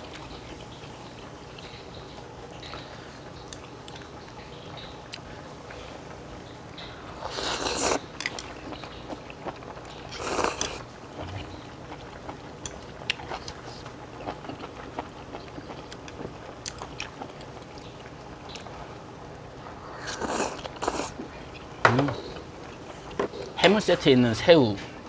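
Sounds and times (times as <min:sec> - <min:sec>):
person slurping food: 0:07.2 - 0:08.0, 0:10.2 - 0:11.6, 0:19.9 - 0:21.2
person chewing: 0:07.2 - 0:18.7, 0:19.6 - 0:21.8.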